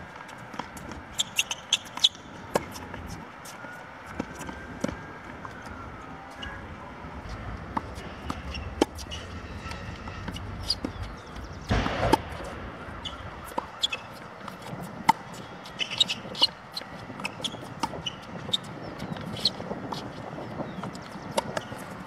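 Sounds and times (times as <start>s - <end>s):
tennis balls bouncing on court: 0.2s - 22.0s
tennis balls struck by rackets: 6.5s - 21.9s.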